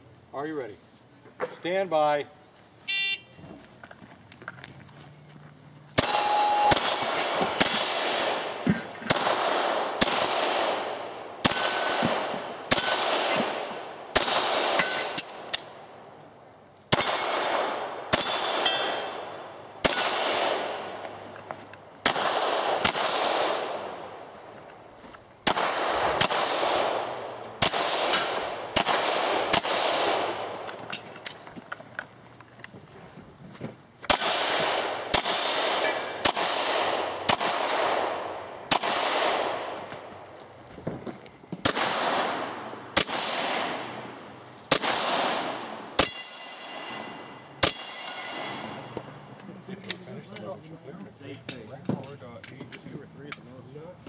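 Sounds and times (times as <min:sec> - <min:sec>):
handgun shots: 0:06.0 - 0:08.5, 0:09.1 - 0:13.6
ringing echo of gunshots: 0:06.0 - 0:15.5, 0:16.9 - 0:20.9, 0:22.0 - 0:24.0, 0:25.4 - 0:30.6, 0:34.1 - 0:39.8, 0:41.6 - 0:44.1, 0:44.7 - 0:48.9.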